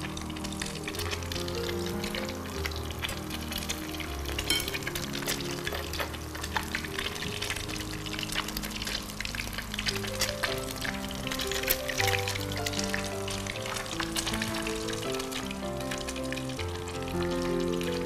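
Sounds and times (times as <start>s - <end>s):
background music with held notes: 0.0s - 18.0s
pastry sheets crackling: 0.0s - 18.0s.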